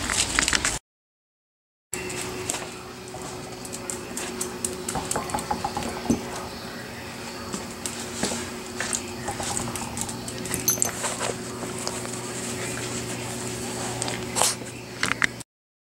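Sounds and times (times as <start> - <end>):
steady low hum: 2.0 - 15.4
loud knock: 5.0 - 6.3.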